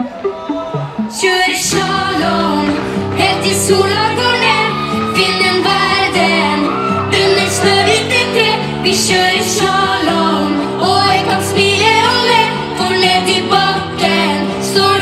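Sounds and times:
pop song over loudspeakers: 0.0s - 15.0s
woman singing: 1.0s - 15.0s.

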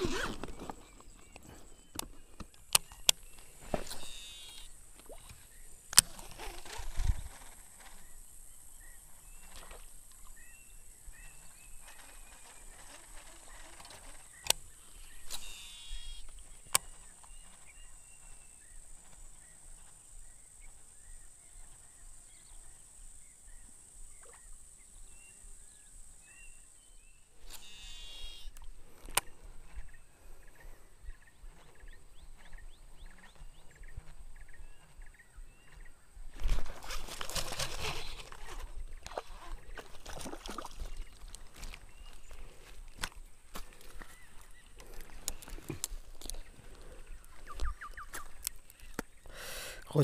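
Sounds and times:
high insect buzz: 2.8s - 29.2s
fishing reel whirring: 3.8s - 4.7s, 12.1s - 17.2s
small chirping calls: 10.2s - 36.0s, 40.6s - 50.0s.

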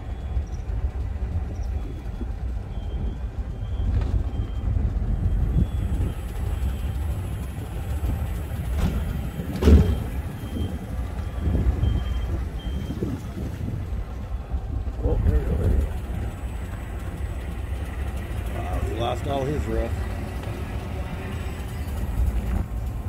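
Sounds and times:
vehicle rumbling: 0.0s - 23.0s
faint high beeps: 9.8s - 13.1s.

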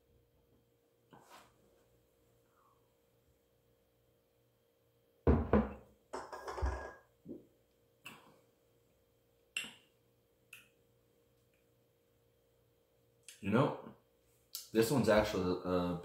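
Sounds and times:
glass mug knocking on wooden table: 5.3s - 7.0s.

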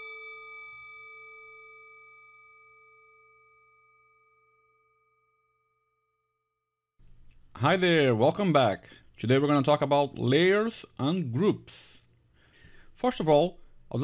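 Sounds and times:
bell-like chime: 0.0s - 5.8s.

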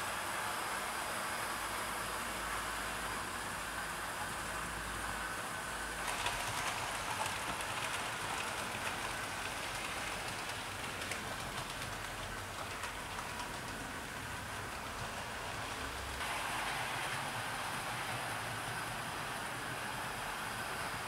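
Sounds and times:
model train rolling on track: 0.0s - 21.0s
wheels clicking over rail joints: 6.0s - 21.0s.

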